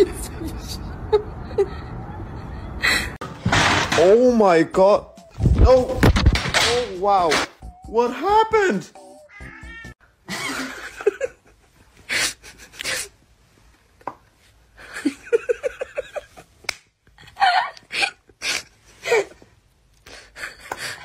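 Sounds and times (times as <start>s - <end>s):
person laughing breathily: 0.0s - 3.2s, 12.0s - 13.1s, 20.0s - 21.0s.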